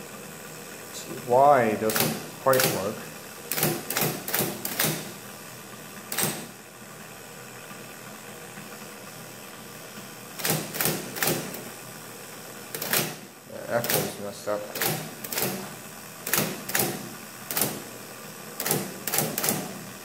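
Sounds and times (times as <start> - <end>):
electric typewriter motor running: 0.9 - 20.0
typewriter type-bar strikes: 1.9 - 2.9, 3.5 - 5.1, 6.1 - 6.5, 10.4 - 11.6, 12.7 - 13.2, 13.8 - 15.6, 16.3 - 17.8, 18.6 - 19.8.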